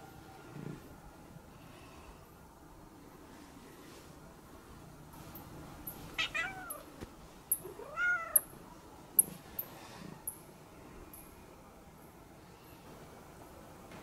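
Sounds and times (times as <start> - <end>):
cat meowing: 6.2 - 6.9, 7.8 - 8.4.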